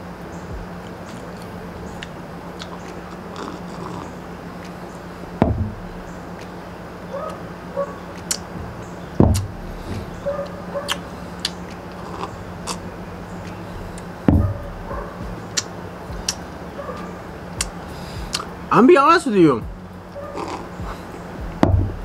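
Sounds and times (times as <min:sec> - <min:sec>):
steady low hum: 0:00.0 - 0:22.0
person sipping from a mug: 0:02.6 - 0:04.1, 0:11.4 - 0:12.8, 0:20.4 - 0:20.7
dull thumps: 0:05.3 - 0:06.2, 0:08.4 - 0:10.4, 0:13.9 - 0:15.4, 0:20.8 - 0:22.0.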